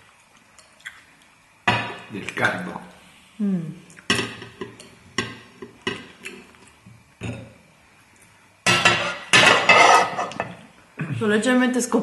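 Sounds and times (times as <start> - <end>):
person humming: 3.4 - 3.8
utensils clinking on plates: 8.7 - 10.6.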